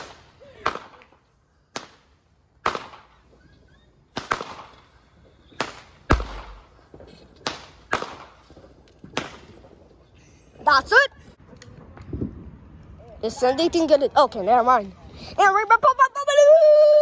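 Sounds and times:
fireworks bangs: 0:00.0 - 0:10.9.

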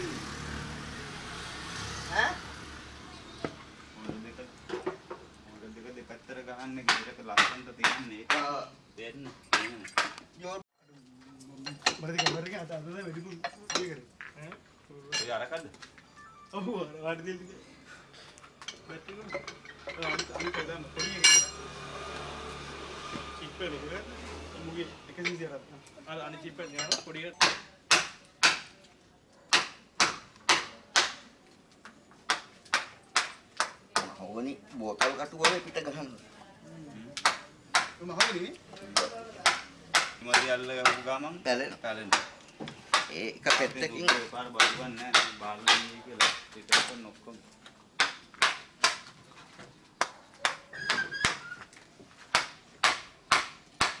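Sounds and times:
mallet striking chisel: 0:06.9 - 0:08.6, 0:42.1 - 0:47.0.

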